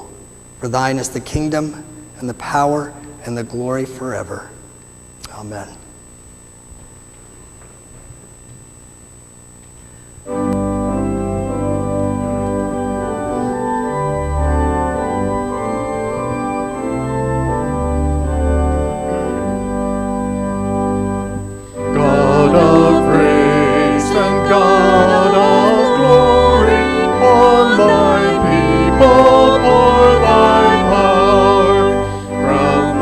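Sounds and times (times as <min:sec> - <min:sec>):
organ-like keyboard chords: 0:00.0 - 0:33.0
woman and man singing: 0:21.9 - 0:33.0.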